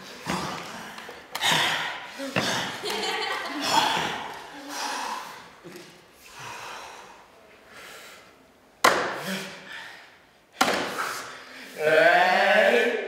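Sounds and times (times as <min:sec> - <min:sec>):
hands slapping table: 0:08.8 - 0:09.2.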